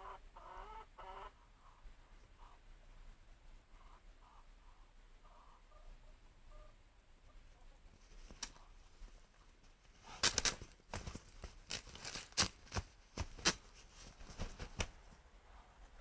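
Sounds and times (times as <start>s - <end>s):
birds fighting with wings beating: 10.1s - 15.0s.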